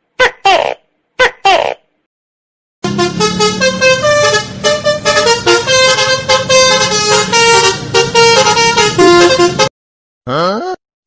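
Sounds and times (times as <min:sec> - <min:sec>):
multi-tone horn tune: 0:02.8 - 0:09.7.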